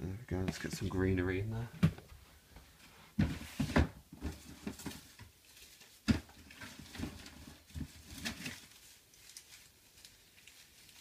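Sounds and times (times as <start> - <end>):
hands handling plastic enclosure: 3.1 - 9.5.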